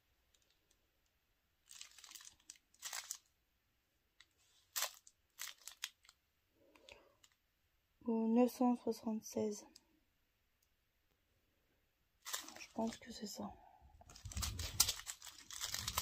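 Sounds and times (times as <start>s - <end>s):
plastic sachets crinkling: 1.6s - 3.3s, 4.2s - 7.4s, 12.2s - 13.3s, 14.0s - 16.0s.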